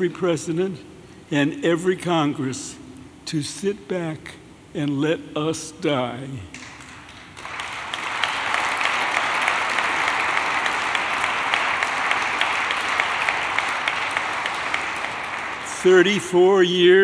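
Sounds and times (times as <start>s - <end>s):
audience applauding: 6.6s - 16.9s.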